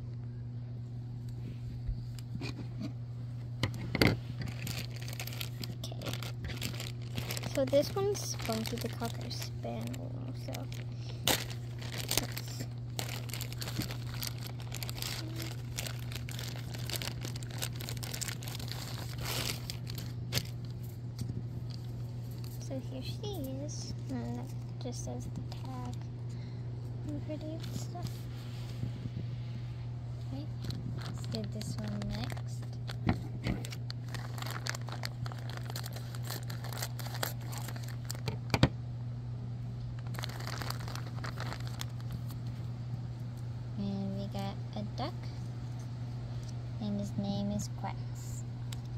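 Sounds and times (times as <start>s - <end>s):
plastic bag crinkling: 3.7s - 22.8s, 30.3s - 38.6s, 40.0s - 42.5s.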